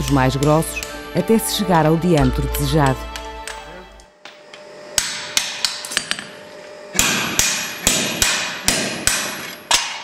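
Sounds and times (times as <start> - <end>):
hammer striking metal punch: 5.0 - 6.3, 6.9 - 10.0.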